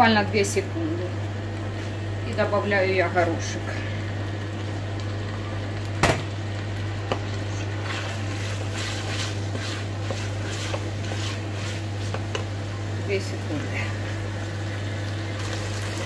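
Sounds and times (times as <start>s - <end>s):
spatula scraping saucepan: 7.8s - 12.4s.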